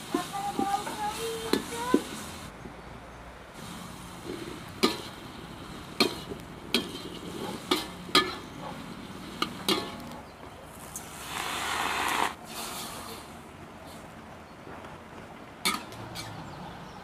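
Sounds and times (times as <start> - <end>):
hiss of frying: 0.0 - 2.5, 3.6 - 10.1, 10.8 - 13.3
spatula clinking against a wok: 6.0 - 8.8.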